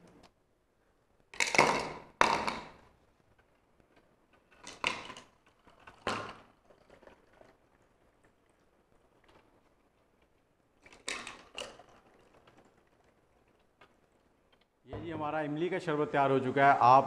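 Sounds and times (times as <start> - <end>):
ice cubes clunking into glasses: 4.5 - 8.0, 10.9 - 13.6.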